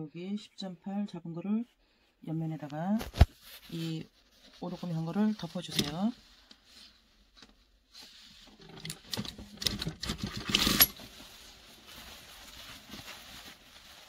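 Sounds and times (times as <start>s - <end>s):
sewing machine stitching: 8.8s - 11.0s.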